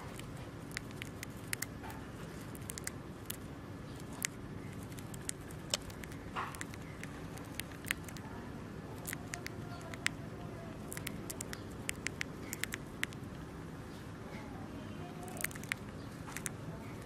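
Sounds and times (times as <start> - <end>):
hamster nibbling food: 0.0 - 13.6, 14.2 - 17.0.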